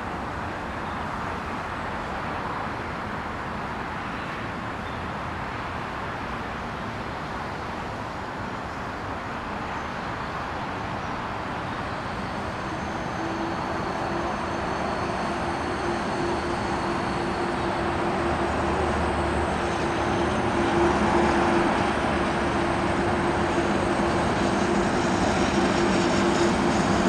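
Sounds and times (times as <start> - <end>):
train wheels rumbling on rail: 7.4 - 27.0.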